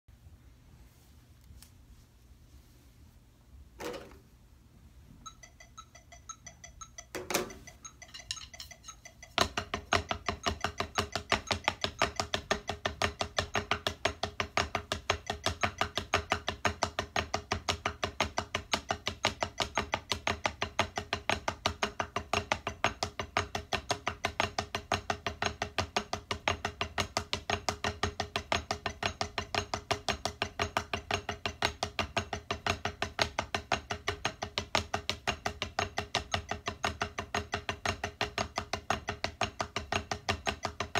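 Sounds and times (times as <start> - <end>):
drumsticks striking a practice pad: 5.4 - 24.5.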